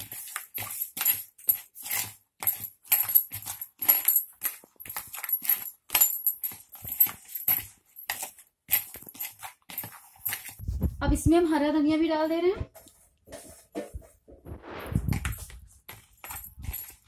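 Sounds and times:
hands squishing mashed potato: 0.0 - 2.9.

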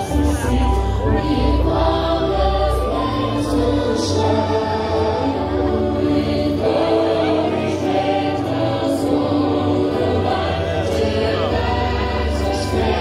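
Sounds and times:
choir singing long held notes: 0.0 - 13.0
musical accompaniment: 0.0 - 13.0.

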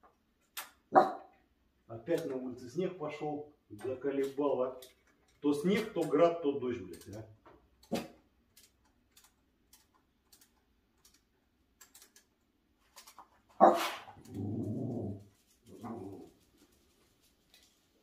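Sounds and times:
dog barking: 0.9 - 1.3, 13.6 - 14.0
dog growling: 13.6 - 16.4.

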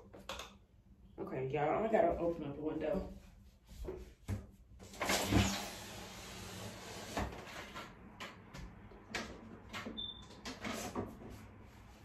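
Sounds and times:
window scraping slide: 5.0 - 8.0.

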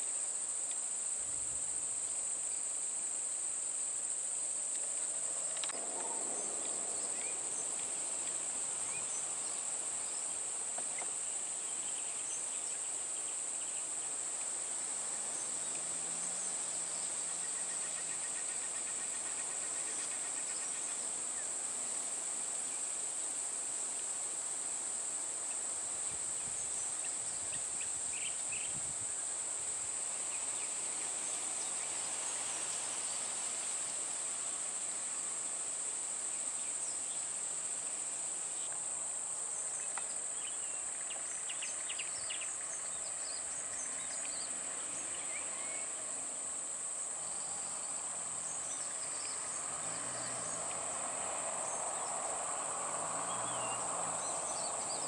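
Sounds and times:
faint vehicle engine: 42.4 - 55.0.

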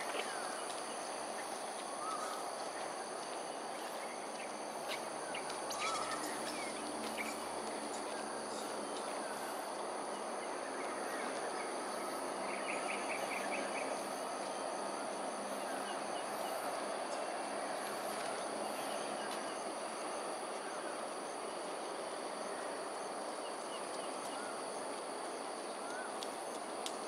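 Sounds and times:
insect trilling: 5.7 - 7.3.

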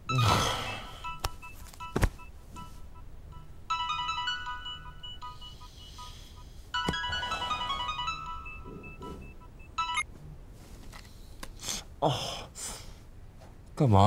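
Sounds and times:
phone ringtone electronic tune: 0.1 - 10.1.

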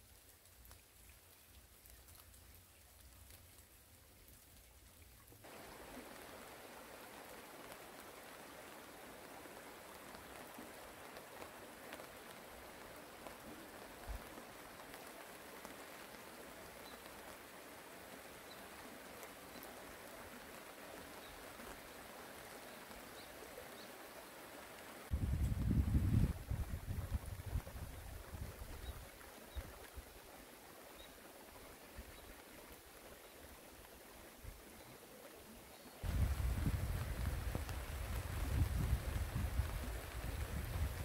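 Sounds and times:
light rain patter: 0.0 - 41.0
stream running over gravel: 0.0 - 41.0.

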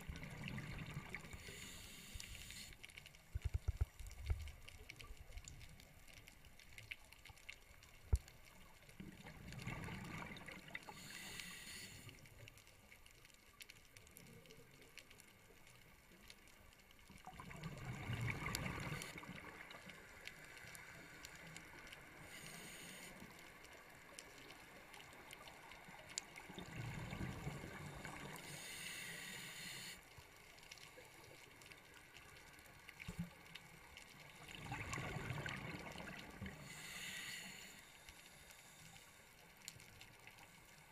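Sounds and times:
regulator inhale hiss: 1.3 - 2.8, 10.9 - 12.4, 22.1 - 23.4, 28.0 - 30.2, 36.5 - 39.4
gurgling exhaled bubbles: 17.3 - 19.6, 34.5 - 36.7.

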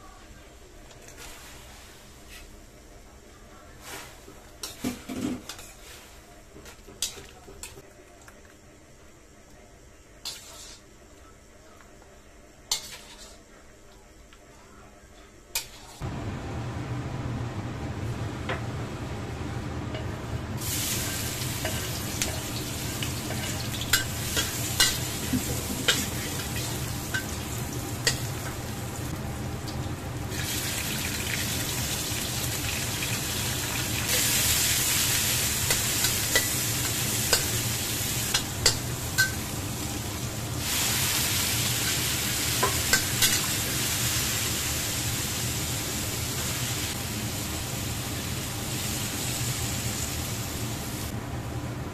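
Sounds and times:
metal spatula scraping wok: 10.3 - 10.9, 12.7 - 13.4, 15.6 - 16.0
food sizzling in hot oil: 20.6 - 51.1.

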